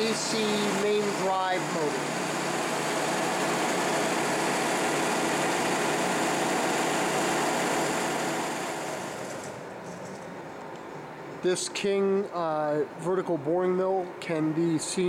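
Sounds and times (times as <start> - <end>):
electric motor running: 0.0 - 9.6.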